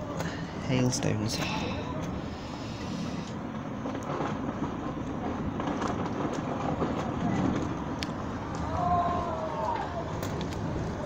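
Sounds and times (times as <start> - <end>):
hail falling on street and cars: 2.2 - 11.0
hailstones ticking nearby: 2.9 - 8.8.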